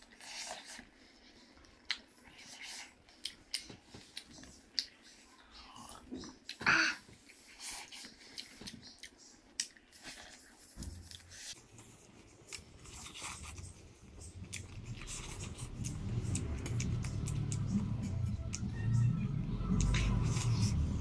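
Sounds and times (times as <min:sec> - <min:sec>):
chewing and smacking: 0:00.0 - 0:19.0, 0:19.6 - 0:21.0.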